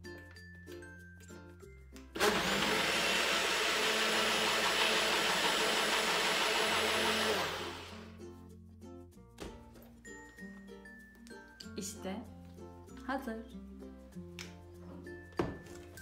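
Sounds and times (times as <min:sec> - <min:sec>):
blender motor running: 0:02.2 - 0:08.2.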